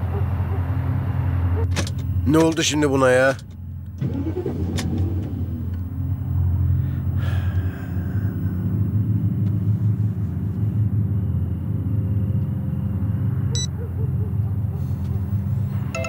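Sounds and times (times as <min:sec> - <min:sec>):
car engine cranking on starter: 0:03.9 - 0:05.9.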